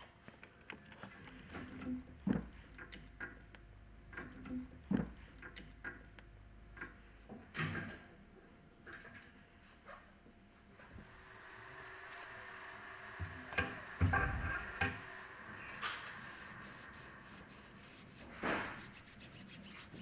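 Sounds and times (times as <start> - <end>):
cloth rubbing on metal shaft: 13.2 - 20.0.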